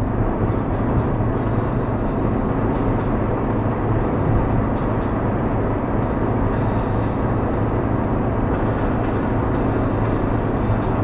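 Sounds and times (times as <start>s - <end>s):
car engine and tyre noise: 0.0s - 11.0s.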